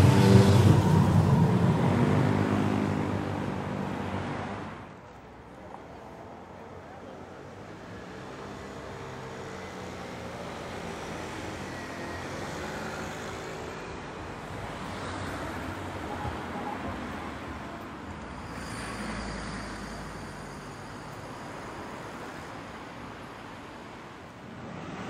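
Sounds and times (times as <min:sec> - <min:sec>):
cars driving past: 0:00.0 - 0:25.0.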